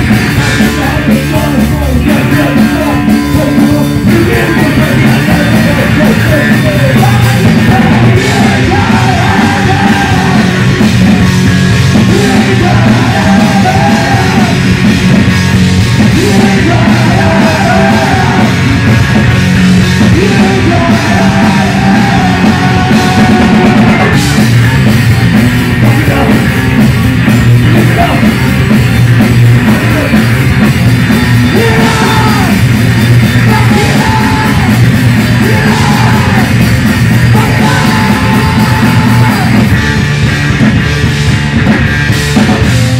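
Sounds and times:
shouted lead vocal: 0.0 - 11.3, 11.9 - 15.0, 16.0 - 19.2, 19.8 - 26.8, 27.6 - 28.4, 31.4 - 39.9
drums: 0.0 - 42.9
electric bass guitar: 0.0 - 42.9.

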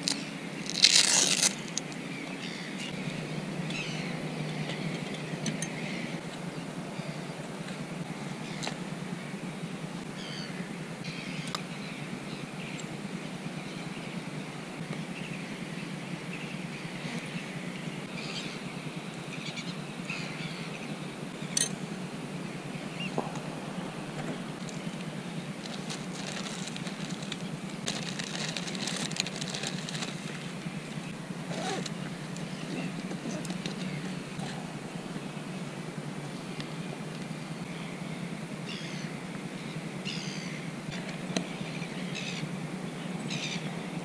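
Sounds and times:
fishing tackle clicks and rustles: 0.0 - 2.0, 25.6 - 30.5
steady low hum: 0.0 - 44.0.

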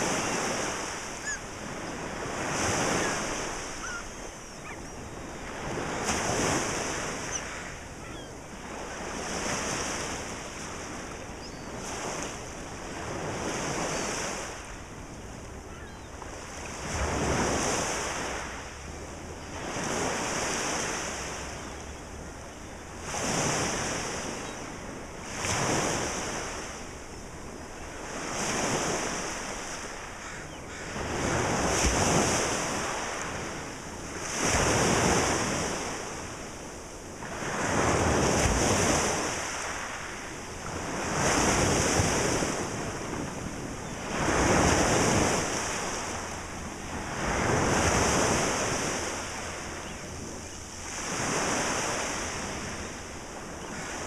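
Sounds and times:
waves washing up pebbly beach: 0.0 - 4.0, 37.2 - 49.6.

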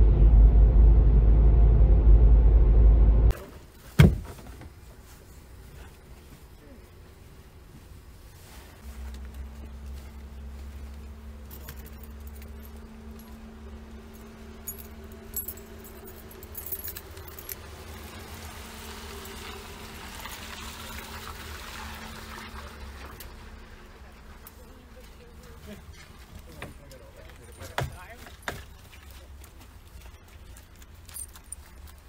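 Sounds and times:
steady low hum: 0.0 - 3.3
keys jangling: 11.4 - 17.9, 30.0 - 32.0.

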